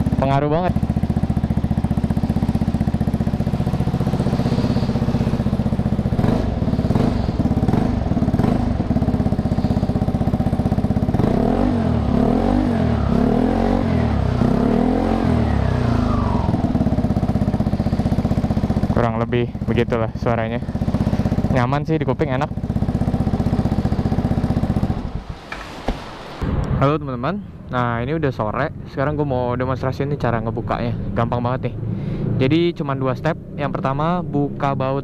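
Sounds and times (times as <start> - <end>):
scooter engine idling: 0.0 - 25.3
scooter throttle revving: 0.0 - 25.8.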